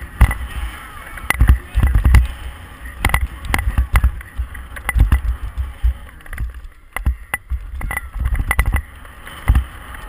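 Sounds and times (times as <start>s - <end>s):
bike rattling over ground: 0.0s - 10.0s
wind rumble on microphone: 0.0s - 10.0s.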